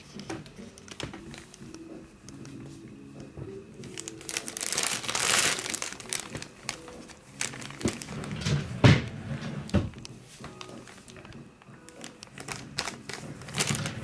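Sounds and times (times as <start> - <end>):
plastic bag crinkling: 0.0 - 1.8, 3.7 - 8.7, 9.6 - 14.0.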